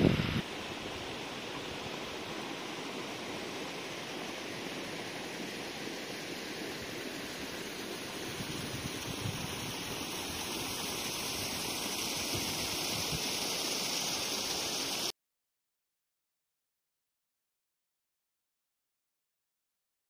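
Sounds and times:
steady rushing outdoor noise: 0.0s - 15.1s.

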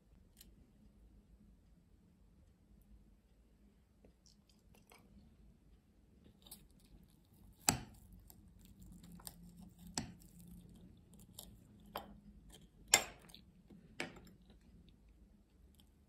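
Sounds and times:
knife and fork cutting pastry: 6.3s - 13.5s.

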